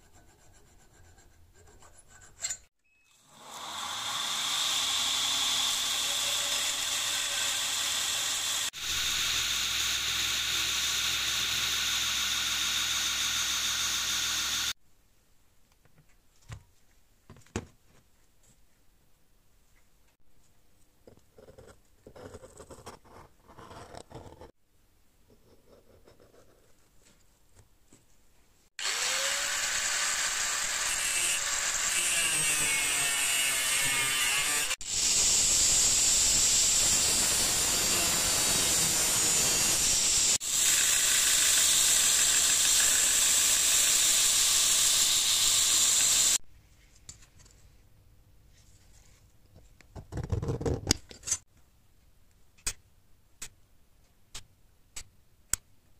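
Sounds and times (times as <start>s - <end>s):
electric grinder cutting metal: 3.2s - 14.8s, 28.8s - 46.4s.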